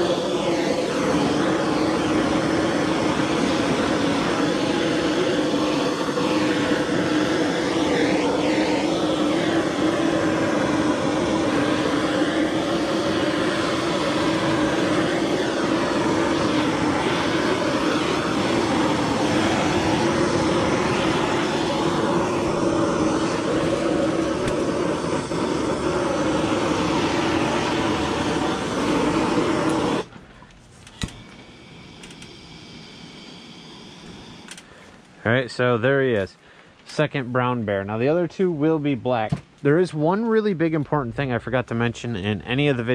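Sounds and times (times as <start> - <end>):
propane torch roaring: 0.0 - 37.0
torch valve click: 29.6 - 29.9, 32.0 - 32.4, 34.0 - 34.7.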